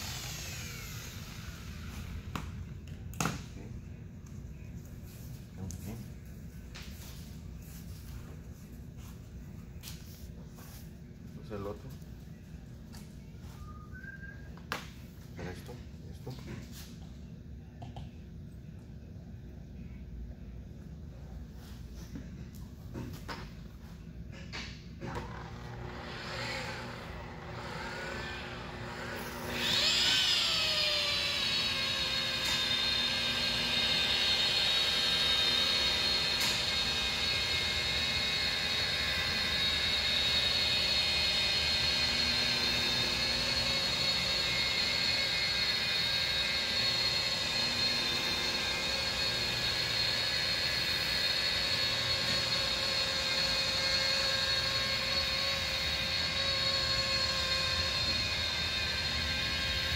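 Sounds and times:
electric polisher motor whine: 0:00.0 - 0:02.4, 0:25.1 - 0:59.9.

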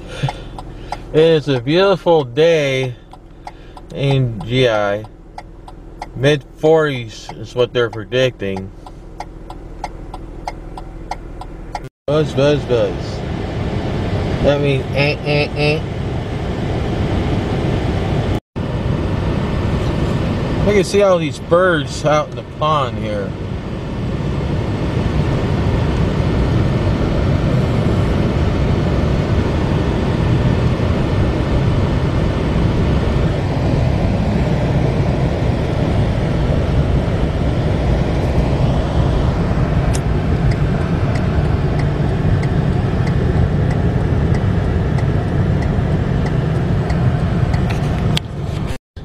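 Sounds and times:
car road and engine rumble: 0:00.0 - 0:49.0
faint regular ticking: 0:00.2 - 0:06.3, 0:07.2 - 0:11.9.

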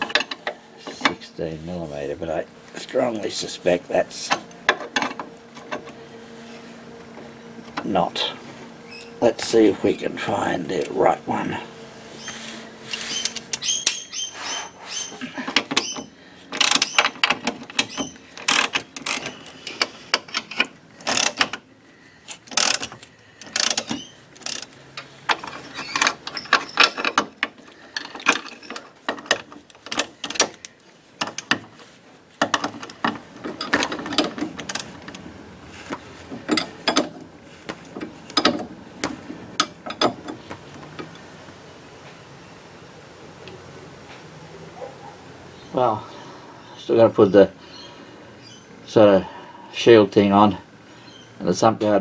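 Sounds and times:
socket wrench ratchet clicking: 0:22.3 - 0:24.7.

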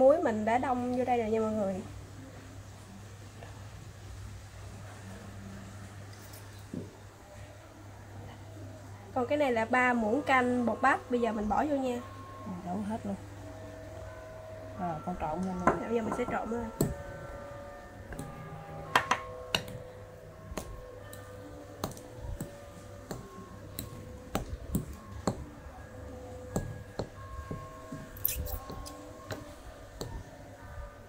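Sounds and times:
fork scraping glass bowl: 0:28.2 - 0:29.0.

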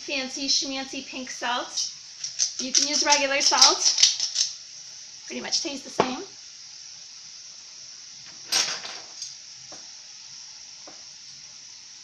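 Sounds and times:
oil sizzling in a pan: 0:00.0 - 0:12.0.

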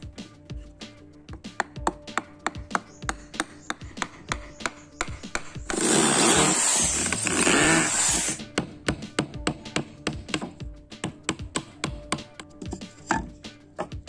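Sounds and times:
background music: 0:00.0 - 0:14.0
electric drill into wood: 0:05.7 - 0:08.4.

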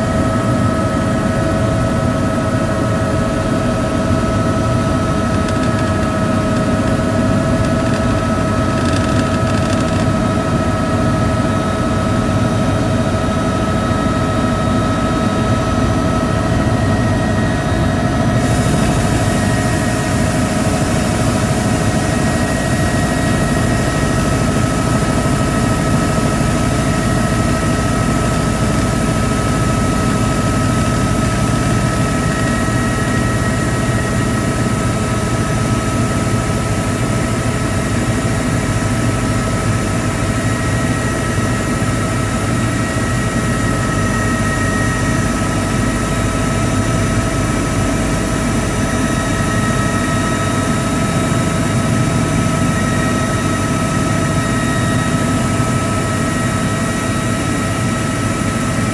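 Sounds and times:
high whine: 0:00.0 - 0:37.2
helicopter engine and rotor drone: 0:00.0 - 0:58.9.

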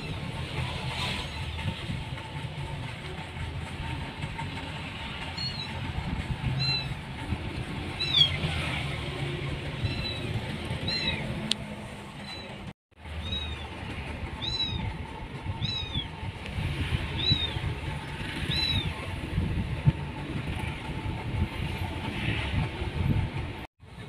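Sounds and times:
steady low rumble: 0:13.0 - 0:23.7.

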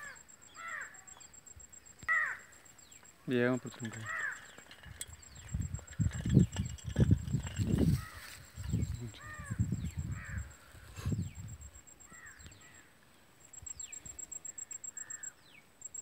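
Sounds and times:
hoarse bird calls: 0:03.3 - 0:06.8, 0:07.8 - 0:11.4.

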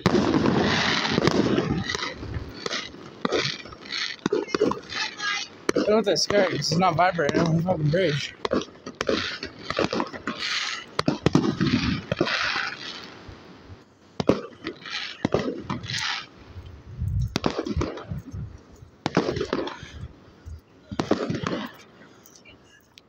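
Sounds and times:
fireworks cracking: 0:00.0 - 0:23.0
people talking: 0:04.3 - 0:08.4, 0:21.7 - 0:23.0.

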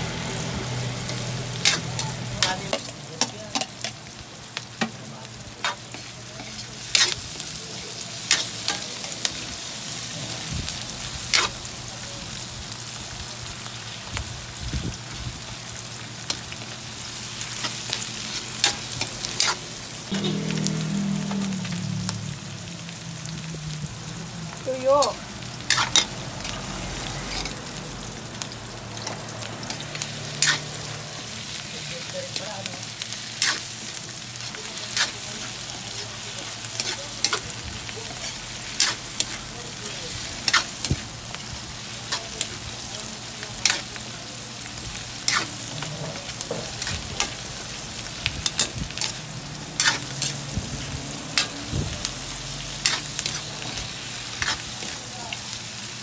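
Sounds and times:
food sizzling in a wok: 0:00.0 - 0:56.0
metal spatula scraping a pan: 0:01.1 - 0:03.7, 0:18.6 - 0:21.5, 0:25.6 - 0:26.2, 0:27.2 - 0:27.6, 0:29.7 - 0:30.9, 0:33.4 - 0:33.7, 0:38.1 - 0:39.4, 0:45.2 - 0:47.3, 0:49.8 - 0:50.4, 0:52.8 - 0:55.0.

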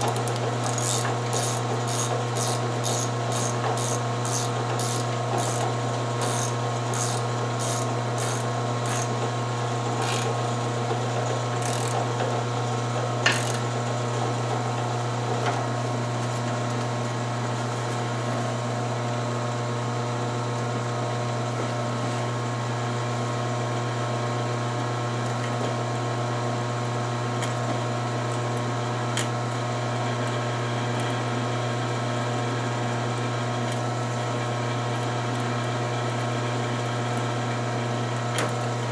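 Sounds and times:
drill press drilling steel: 0:00.0 - 0:09.2, 0:10.0 - 0:10.4.

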